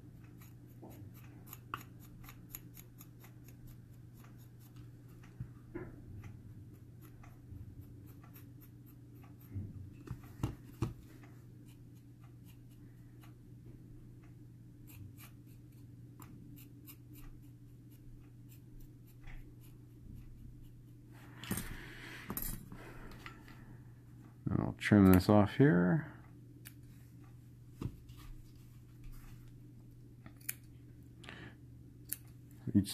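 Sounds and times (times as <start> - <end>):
steady low hum: 0.0 - 32.9
tweezers clicking and scratching: 0.2 - 5.4.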